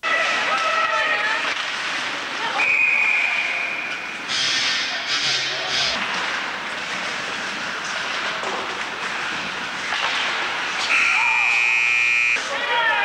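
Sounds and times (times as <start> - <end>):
crowd murmur: 0.0 - 6.6
arena buzzer: 10.8 - 12.5.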